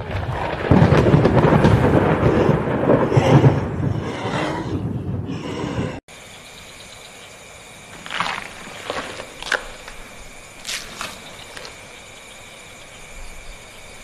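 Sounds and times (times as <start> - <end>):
rough rumbling horror effect: 0.0 - 6.0.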